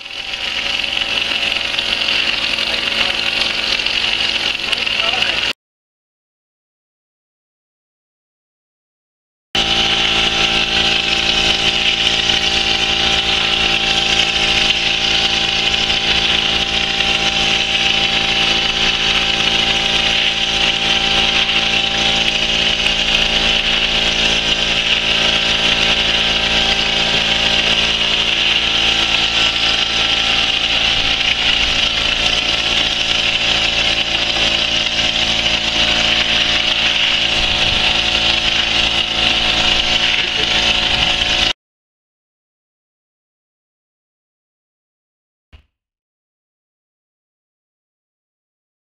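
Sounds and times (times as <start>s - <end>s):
steady machine hum: 0.0s - 5.6s, 9.6s - 41.6s
spray gun hissing: 10.0s - 41.5s.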